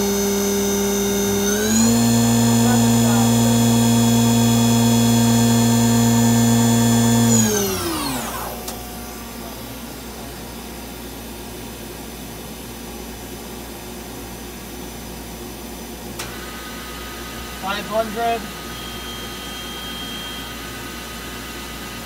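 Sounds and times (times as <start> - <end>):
lathe spindle whine: 0.0 - 10.5, 16.2 - 22.0
machine hum: 0.0 - 14.3.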